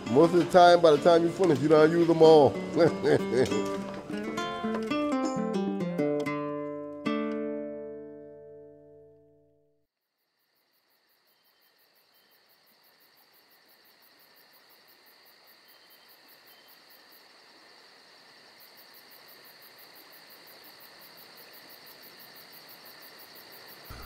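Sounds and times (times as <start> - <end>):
crickets and night insects trilling: 10.1 - 24.0.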